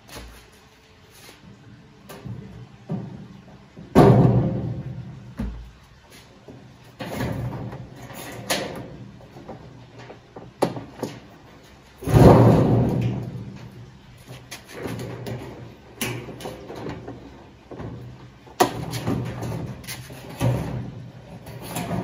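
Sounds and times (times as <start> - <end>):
metal scraping: 18.7 - 22.0.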